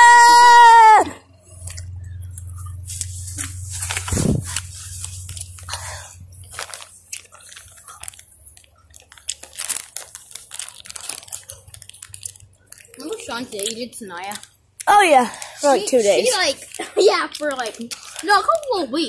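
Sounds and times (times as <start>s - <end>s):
low hum: 1.0s - 8.5s
footsteps crunching through leaves: 2.7s - 7.3s.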